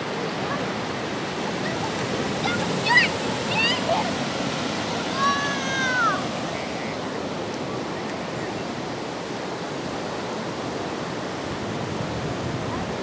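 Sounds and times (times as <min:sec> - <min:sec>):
surf breaking on beach: 0:00.0 - 0:13.0.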